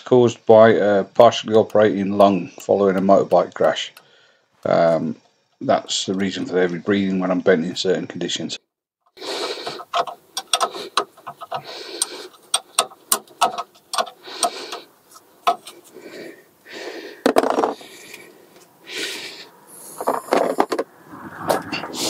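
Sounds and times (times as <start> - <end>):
spanner clicking on metal bolt: 1.4 - 6.4, 9.6 - 15.9
heavy breathing: 4.0 - 4.6, 9.2 - 12.8, 13.9 - 20.6.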